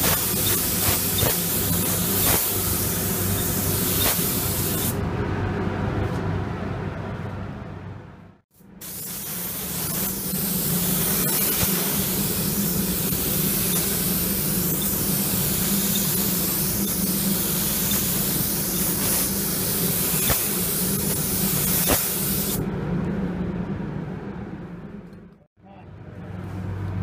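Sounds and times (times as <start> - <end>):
spray gun hissing: 0.0 - 5.0, 8.8 - 22.6
steady low hum: 0.0 - 27.0.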